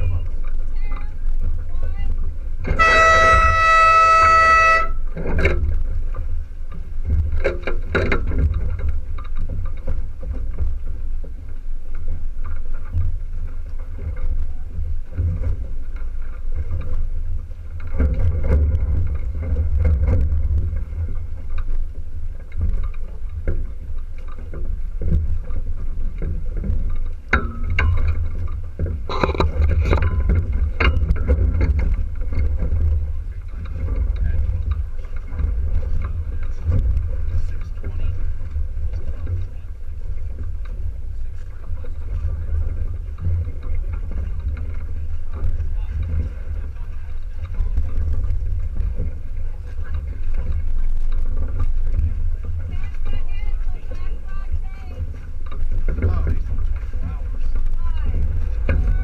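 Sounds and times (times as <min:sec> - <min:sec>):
rumble of wind and water: 0:00.0 - 0:59.0
horn blast: 0:02.6 - 0:05.2
knocks from boat rigging: 0:02.6 - 0:59.0.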